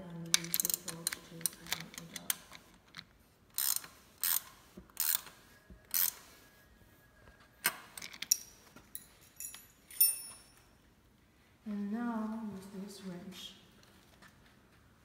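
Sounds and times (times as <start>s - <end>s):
metal and plastic clicks and scrapes: 0.3s - 6.2s.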